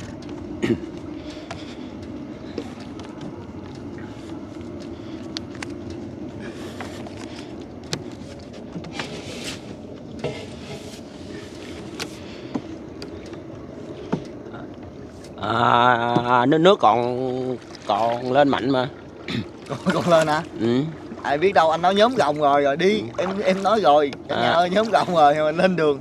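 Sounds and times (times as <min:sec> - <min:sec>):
boat engine running: 0:00.0 - 0:26.0.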